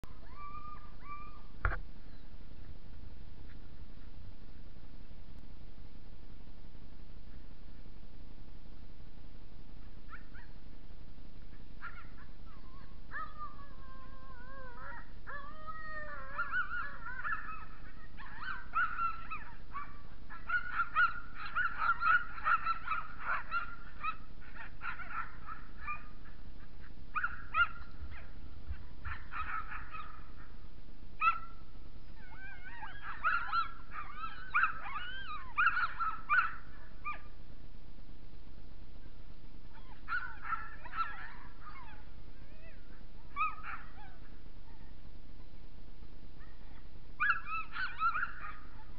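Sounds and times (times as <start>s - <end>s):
sled dogs howling and yipping: 0.0s - 1.5s, 11.8s - 30.6s, 31.2s - 37.3s, 39.7s - 45.1s, 46.4s - 48.9s.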